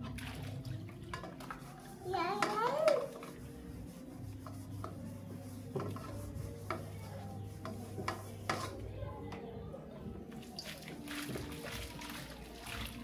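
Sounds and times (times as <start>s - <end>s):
plate being scrubbed: 1.1s - 8.8s.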